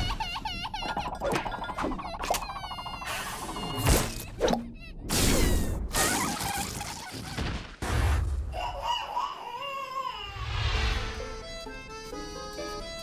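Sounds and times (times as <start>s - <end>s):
background music with held notes: 11.0s - 13.0s.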